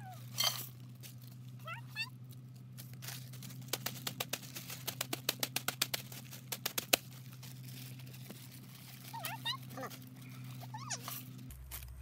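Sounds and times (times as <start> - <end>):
plastic wrapper crinkling: 5.8 - 12.0.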